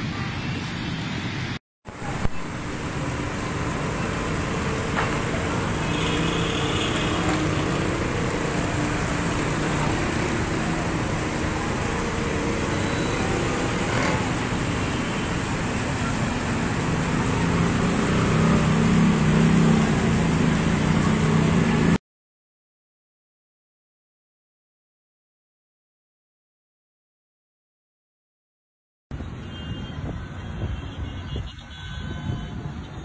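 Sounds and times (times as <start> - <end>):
steady wash of noise: 0.0 - 22.0
vehicle engines: 0.0 - 22.0.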